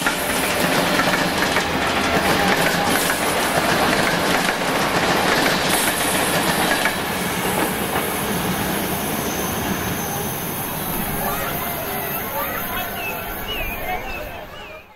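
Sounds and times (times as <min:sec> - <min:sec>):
train wheels clattering over rail joints: 0:00.0 - 0:08.9.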